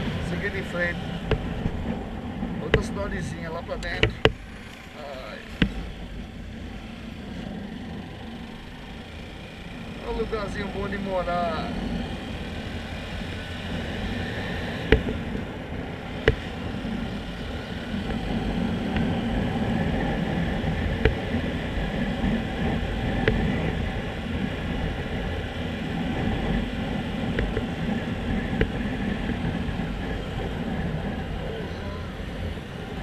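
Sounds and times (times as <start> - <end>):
motorcycle engine cruising: 0.0 - 33.0
road noise: 0.0 - 33.0
sharp knocks: 1.3 - 1.8.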